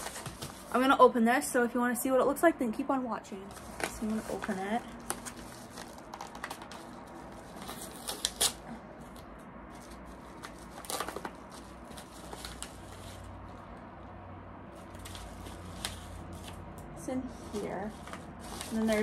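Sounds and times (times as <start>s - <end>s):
packaging rustling and crinkling: 0.0s - 0.8s, 3.5s - 13.6s, 17.4s - 19.0s.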